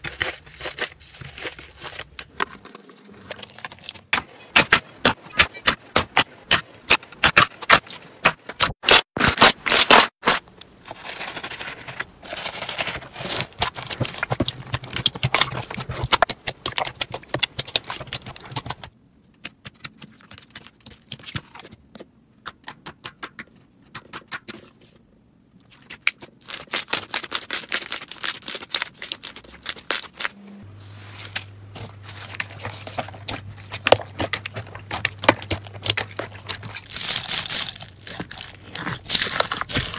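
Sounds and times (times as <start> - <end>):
hands squishing slime: 31.9 - 39.9.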